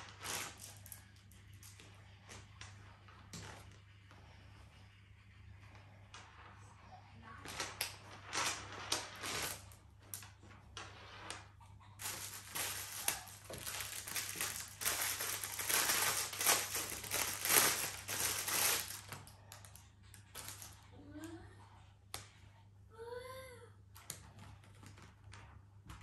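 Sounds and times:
packaging wrap crinkling: 0.0s - 1.0s, 7.4s - 10.4s, 12.0s - 20.8s.

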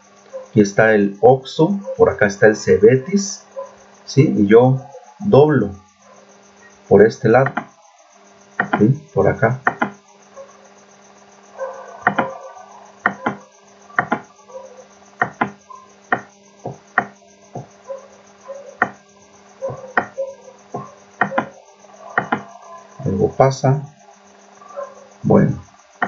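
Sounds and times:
low electrical hum: 0.0s - 26.0s
computer mouse clicking: 9.7s - 10.0s, 12.0s - 12.4s, 13.1s - 13.4s, 14.0s - 14.3s, 21.2s - 21.5s, 22.2s - 22.5s.

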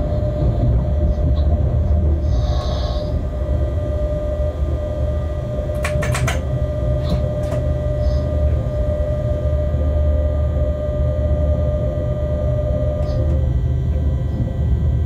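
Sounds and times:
constant humming tone: 0.0s - 15.0s
locomotive cab rumble: 0.0s - 15.0s
sharp clicks: 5.8s - 6.4s.

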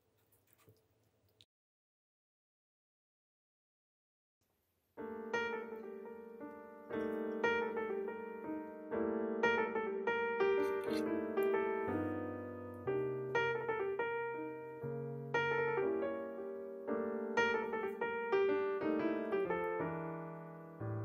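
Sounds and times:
gentle piano music: 5.0s - 21.0s.

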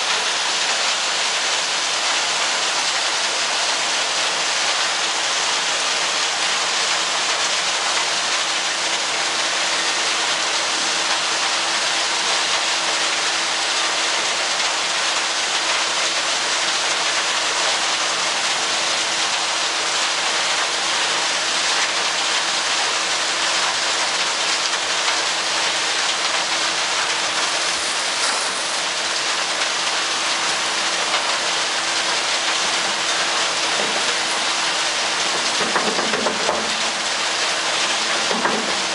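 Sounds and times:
constant machinery hum: 0.0s - 38.9s
loader machinery rushing noise: 27.4s - 29.6s.

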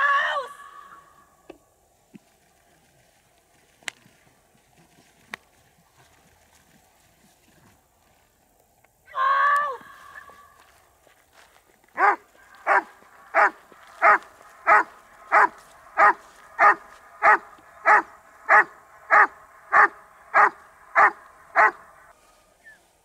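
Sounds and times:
dog barking: 12.0s - 21.9s.

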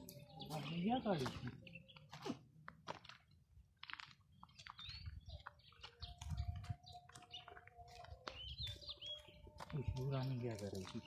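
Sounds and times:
crackling in dry leaves: 9.5s - 11.0s.

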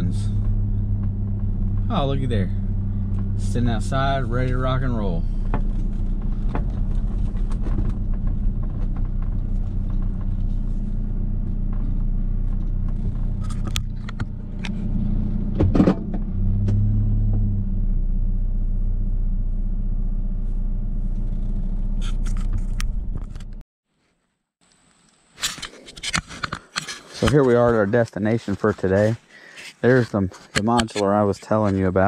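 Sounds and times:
vehicle engine idling: 0.0s - 23.6s.

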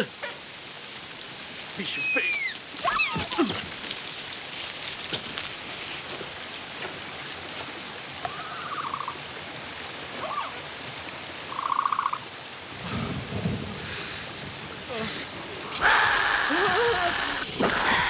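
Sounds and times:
heavy rain: 0.0s - 18.0s
creature trilling calls: 15.0s - 18.0s.

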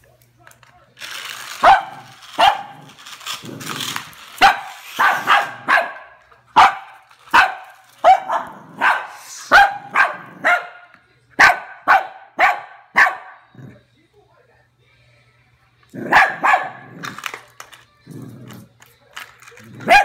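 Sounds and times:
dog barking: 1.6s - 2.8s, 4.4s - 13.5s, 16.0s - 17.0s, 19.8s - 20.0s.

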